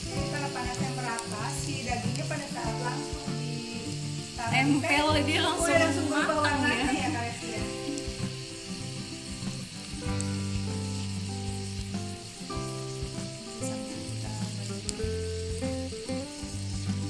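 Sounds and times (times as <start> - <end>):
beef sizzling in pan: 0.0 - 17.0
crackling pops: 7.6 - 17.0.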